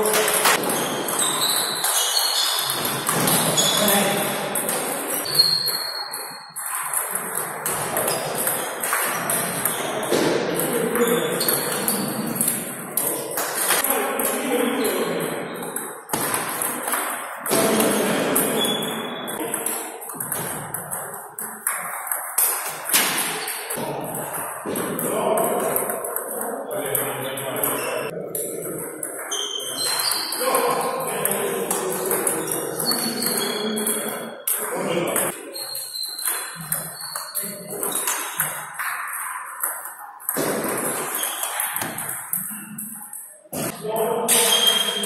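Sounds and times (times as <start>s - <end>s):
table tennis balls clicking: 0.0s - 14.4s, 15.3s - 26.6s, 27.4s - 43.7s
players' voices: 2.8s - 5.3s, 8.6s - 21.5s, 23.0s - 35.6s, 40.4s - 45.0s.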